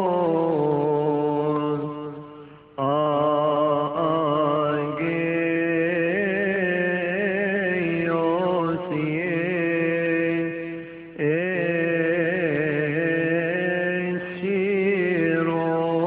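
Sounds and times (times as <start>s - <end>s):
man chanting a hymn: 0.0s - 16.0s.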